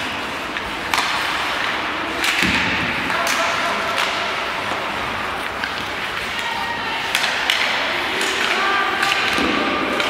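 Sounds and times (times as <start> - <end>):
hockey play noise: 0.0 - 10.0
hockey stick hitting puck: 0.0 - 10.0.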